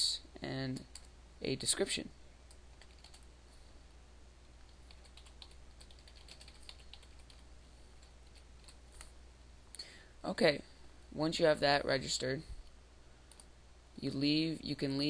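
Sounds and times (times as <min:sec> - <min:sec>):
steady low hum: 0:00.0 - 0:15.0
computer keyboard typing: 0:00.9 - 0:01.1, 0:02.5 - 0:03.2, 0:04.7 - 0:09.1.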